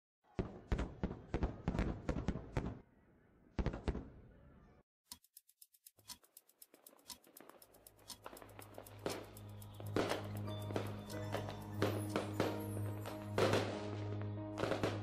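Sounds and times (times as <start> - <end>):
fireworks bangs: 0.3 - 2.8, 9.9 - 15.0
fireworks crackling pops: 6.7 - 15.0.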